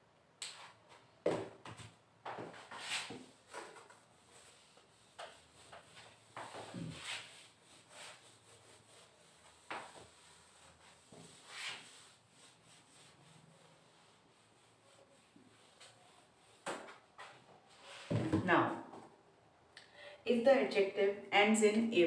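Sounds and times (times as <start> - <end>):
duster wiping whiteboard: 2.3 - 18.3.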